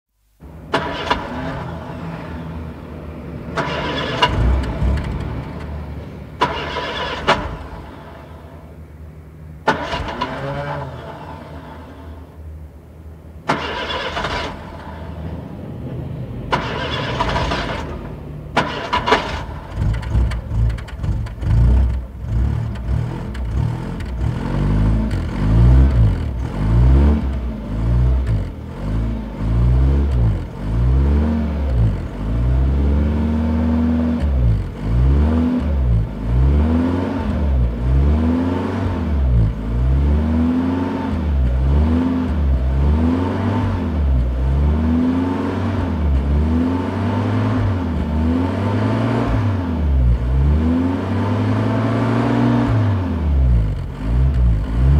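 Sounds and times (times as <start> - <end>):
car engine revving: 0.4 - 8.9, 9.6 - 12.4, 13.4 - 54.9
car starter cranking: 0.6 - 1.8, 3.5 - 5.8, 6.4 - 8.1, 9.6 - 11.1, 13.4 - 15.1, 16.5 - 24.2.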